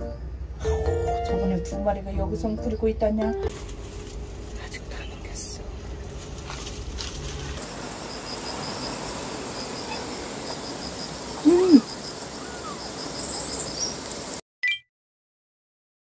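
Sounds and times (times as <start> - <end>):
high insect chirps: 3.6 - 14.4
kitten mewing: 11.4 - 12.7.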